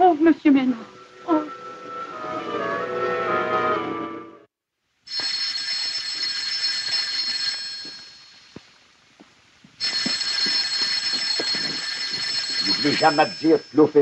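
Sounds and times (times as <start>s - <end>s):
telephone bell ringing: 5.1s - 8.5s, 9.8s - 14.0s.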